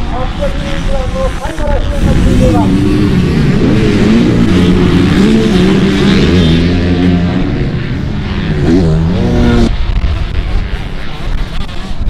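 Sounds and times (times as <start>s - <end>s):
motorbike engines revving: 0.0s - 12.0s.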